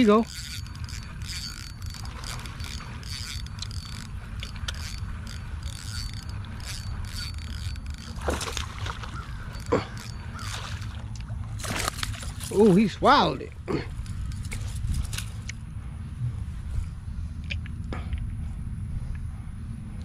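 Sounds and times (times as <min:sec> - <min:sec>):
fishing reel clicking: 0:00.0 - 0:15.6.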